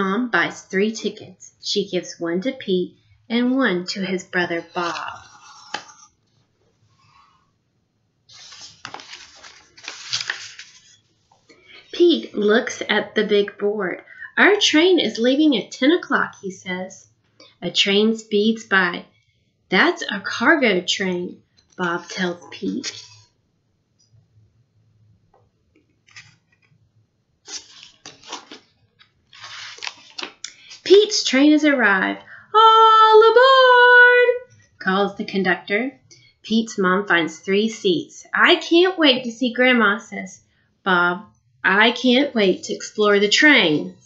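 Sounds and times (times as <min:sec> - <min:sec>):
picture book rustling: 0:04.6 - 0:07.4, 0:08.3 - 0:11.5, 0:21.7 - 0:23.3, 0:25.8 - 0:26.8, 0:27.4 - 0:30.9.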